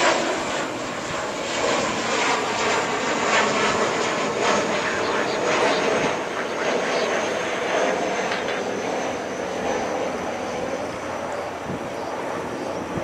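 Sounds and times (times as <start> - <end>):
jet engines rumbling with whine: 0.0 - 13.0.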